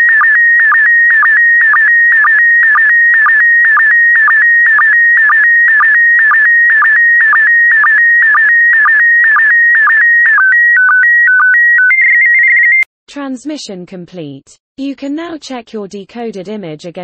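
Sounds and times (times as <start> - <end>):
high electronic whistle with pitch dips: 0.0 - 12.8.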